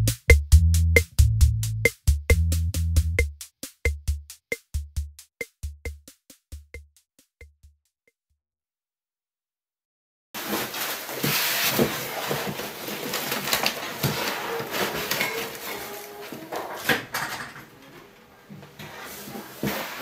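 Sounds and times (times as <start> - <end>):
foam and cardboard rustling: 10.4 - 16.9, 18.9 - 20.0.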